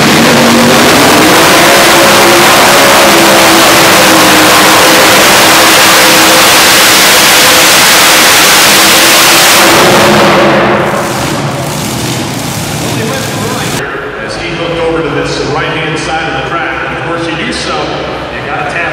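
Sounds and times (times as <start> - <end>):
pulling tractor engines at full throttle: 0.0 - 13.9.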